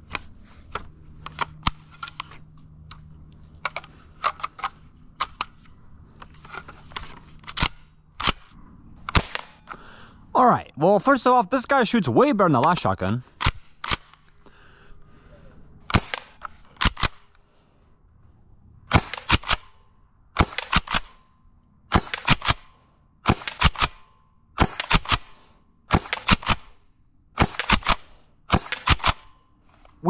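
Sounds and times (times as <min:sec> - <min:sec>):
airsoft shotgun racked and fired: 0:00.1 - 0:09.8, 0:12.6 - 0:14.4, 0:15.8 - 0:17.4, 0:18.9 - 0:19.8, 0:20.4 - 0:21.3, 0:21.9 - 0:26.8, 0:27.4 - 0:30.0.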